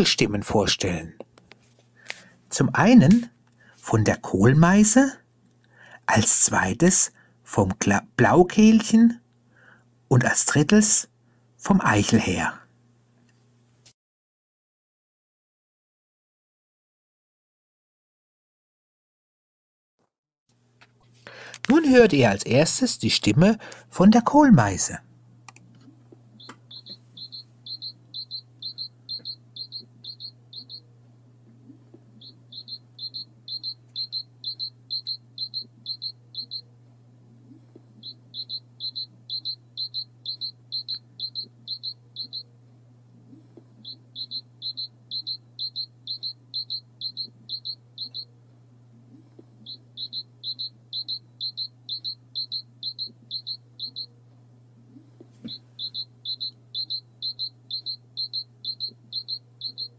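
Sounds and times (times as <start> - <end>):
bird singing high notes: 26.4 - 30.8, 32.2 - 36.6, 38.0 - 42.4, 43.8 - 48.3, 49.7 - 54.1, 55.5 - 59.9.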